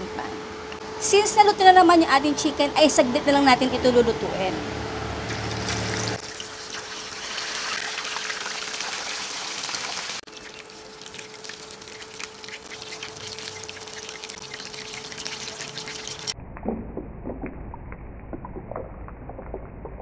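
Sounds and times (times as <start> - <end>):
chicken sizzling in hot oil: 5.3 - 16.4.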